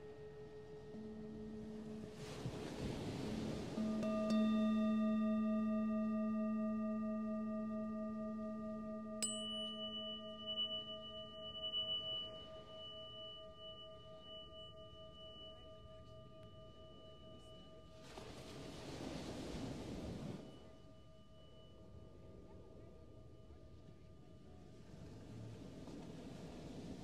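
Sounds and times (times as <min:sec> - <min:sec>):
tuning fork strike click: 0:00.0 - 0:18.4
singing bowl ringing: 0:00.0 - 0:27.0
tuning forks ringing: 0:00.0 - 0:27.0.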